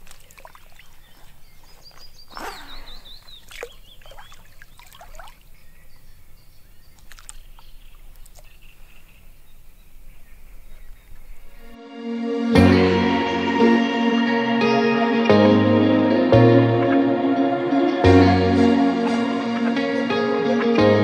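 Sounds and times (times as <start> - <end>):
birds singing: 0.0 - 11.8.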